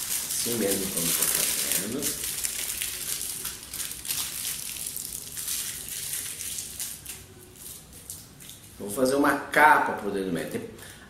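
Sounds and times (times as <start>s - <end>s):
aluminium foil crinkling: 0.0s - 8.8s.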